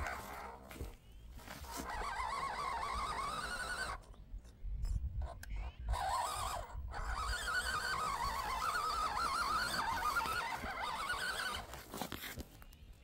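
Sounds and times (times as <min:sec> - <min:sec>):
toy car motor whine: 0:01.6 - 0:04.1, 0:04.9 - 0:11.9.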